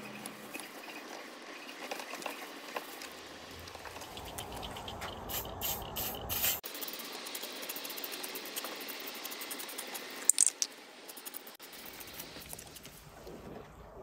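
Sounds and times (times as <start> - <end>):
aerosol spray hissing: 5.3 - 6.6.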